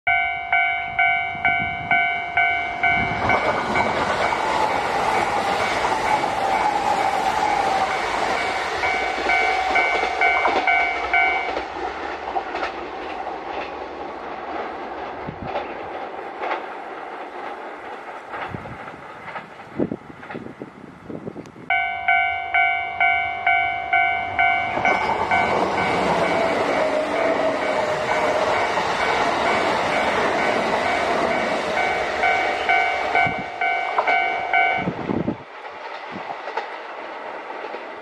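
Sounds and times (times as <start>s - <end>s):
level-crossing warning bell ringing: 0.1s - 11.7s, 21.7s - 35.0s
electric train passing at speed: 0.1s - 38.0s
wheel clacks over rail joints: 1.9s - 20.6s, 21.7s - 34.8s, 35.4s - 38.0s.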